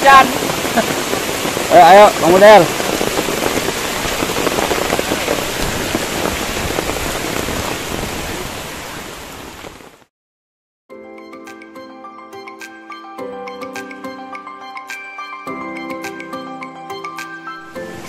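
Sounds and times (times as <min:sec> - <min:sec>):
rain falling: 0:00.0 - 0:10.1
music: 0:10.9 - 0:18.0.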